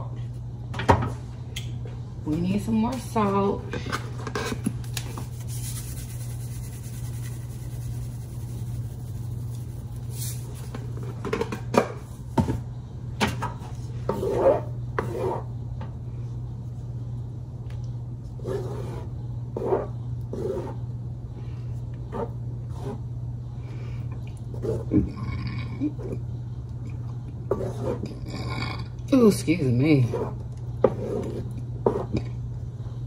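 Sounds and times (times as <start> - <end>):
wooden spoon scraping a pan: 13.9 - 15.5, 27.5 - 28.2.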